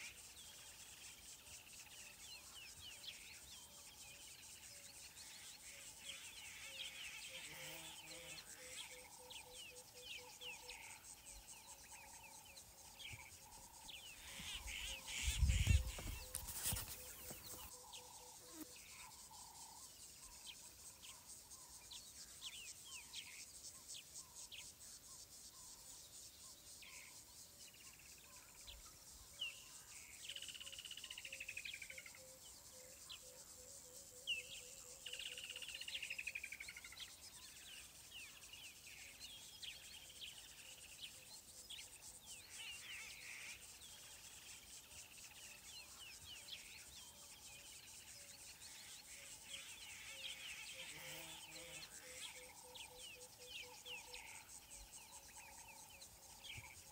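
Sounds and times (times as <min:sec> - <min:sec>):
long falling bird calls: 0:04.4 - 0:18.4
birds chirping: 0:12.1 - 0:18.1.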